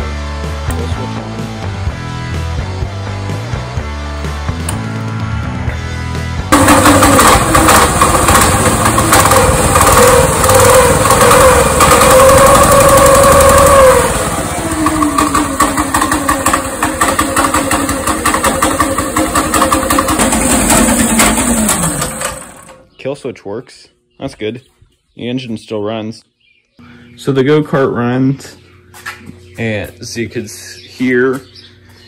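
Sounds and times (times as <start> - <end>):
small engine running: 6.4 - 22.8.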